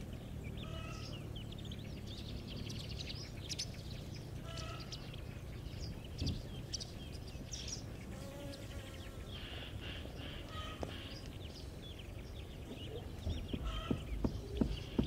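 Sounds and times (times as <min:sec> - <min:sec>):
hen calls: 0:00.6 - 0:01.2, 0:04.4 - 0:05.1, 0:09.4 - 0:11.3, 0:12.7 - 0:15.0
low background rumble: 0:09.2 - 0:15.0
hens chirping and clicking: 0:09.3 - 0:15.0.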